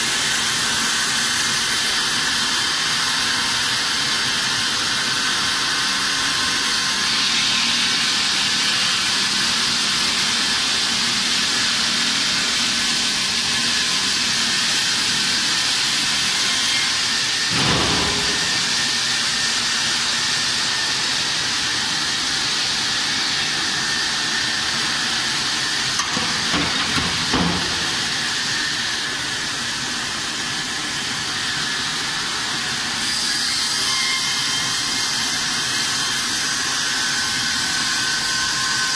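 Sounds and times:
saw blade cutting stone: 0.1s - 38.9s
thump: 17.5s - 18.7s.

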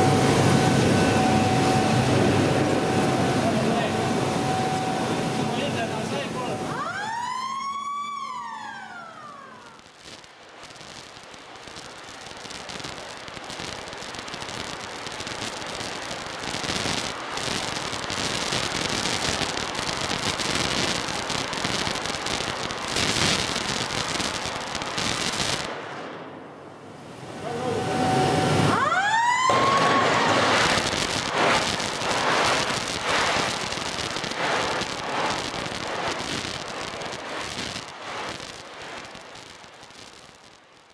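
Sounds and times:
rising whine: 0.0s - 10.0s, 23.8s - 38.4s
electric arc furnace crackling: 0.0s - 40.9s.

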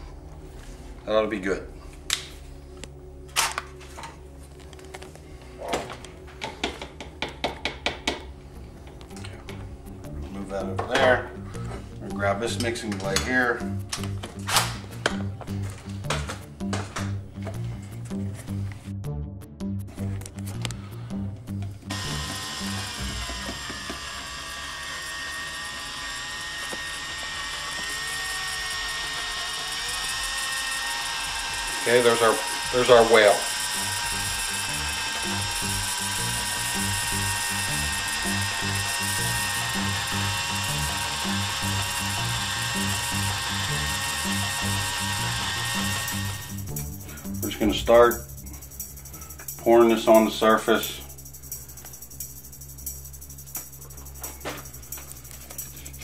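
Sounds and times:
tools clicking and tapping on table: 5.7s - 8.3s
cordless drill whirring: 21.9s - 46.6s.

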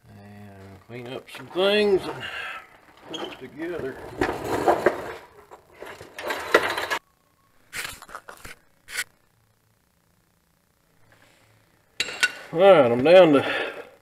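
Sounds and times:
scraping and rubbing handling noise: 0.9s - 7.0s, 7.7s - 9.1s.

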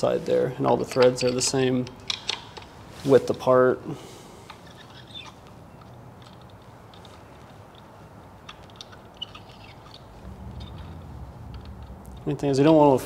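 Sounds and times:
low hum: 9.8s - 13.0s.

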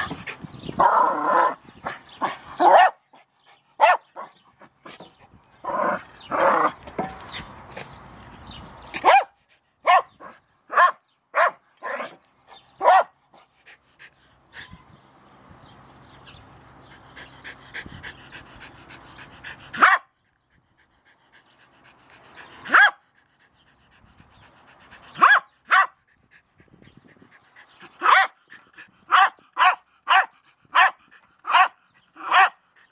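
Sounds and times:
dog barking: 2.6s - 3.0s, 3.8s - 4.4s, 9.0s - 12.1s, 12.8s - 13.1s, 19.8s - 20.1s, 22.7s - 23.0s, 25.2s - 26.0s, 28.0s - 28.4s, 29.1s - 32.6s.

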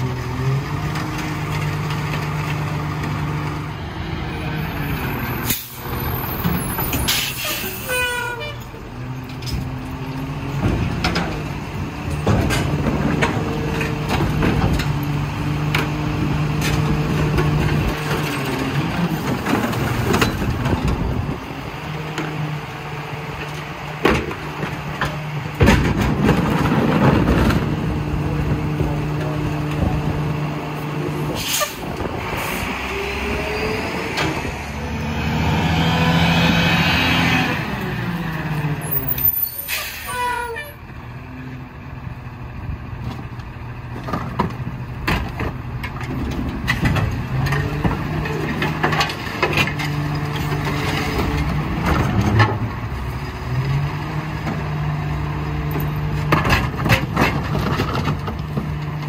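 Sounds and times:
garbage truck diesel engine revving: 8.8s - 39.1s
air brake hiss: 39.6s - 40.2s.

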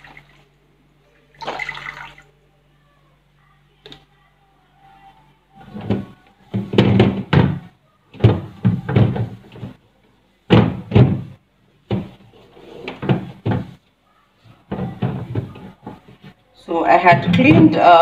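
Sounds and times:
knocking on plastic fridge shelves: 5.8s - 9.8s, 10.5s - 12.2s, 12.9s - 13.8s, 14.7s - 16.0s.

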